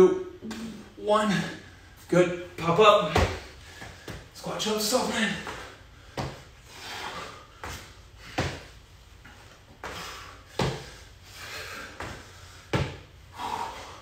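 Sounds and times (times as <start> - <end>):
sneakers thudding on concrete: 3.0 - 4.3, 5.3 - 6.5, 7.6 - 8.8, 9.8 - 11.0, 12.0 - 13.1.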